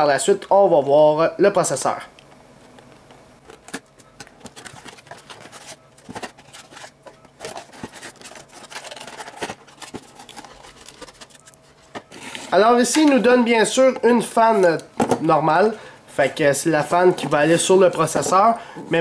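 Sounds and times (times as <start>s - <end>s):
cardboard and plastic packaging rustling: 2.6s - 14.9s.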